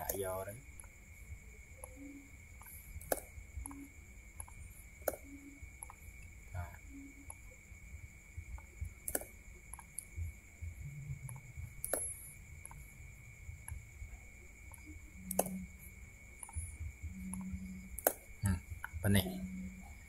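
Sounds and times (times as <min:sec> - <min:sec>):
faint high-pitched electrical whine: 0:00.0 - 0:20.0
computer mouse clicks: 0:04.4 - 0:06.3, 0:08.6 - 0:10.2, 0:11.2 - 0:12.8, 0:14.7 - 0:15.6.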